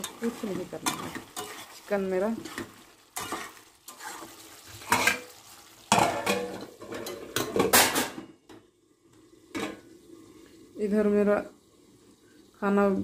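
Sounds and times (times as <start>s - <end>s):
metal spatula scraping a pan: 0.0s - 8.2s.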